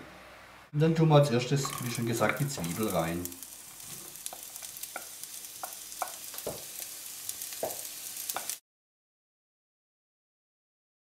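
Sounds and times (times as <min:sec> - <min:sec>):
onions sizzling in oil: 0:01.5 - 0:08.6
wooden spoon tapping plate: 0:04.3 - 0:06.7, 0:07.6 - 0:08.6.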